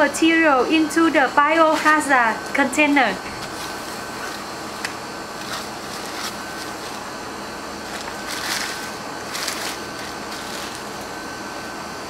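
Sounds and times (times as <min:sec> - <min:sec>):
plastic bag crinkling: 0:05.3 - 0:07.1, 0:07.8 - 0:11.1.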